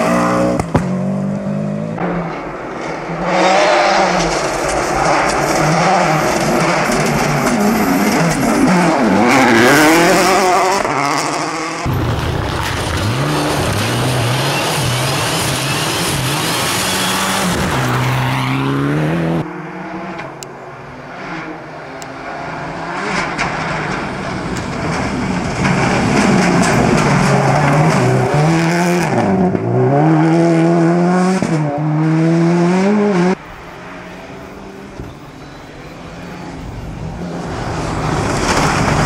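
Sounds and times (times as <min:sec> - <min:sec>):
rally car engines revving: 0:00.0 - 0:39.0
gravel spraying from tyres: 0:37.5 - 0:39.0.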